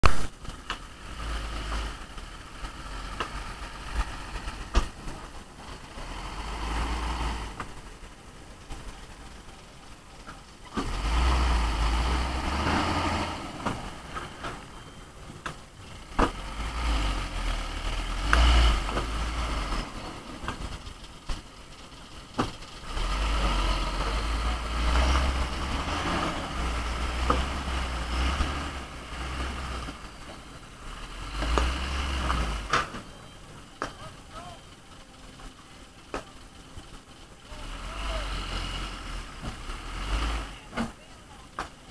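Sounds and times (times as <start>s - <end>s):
diesel truck engine rumbling: 0.0s - 41.9s.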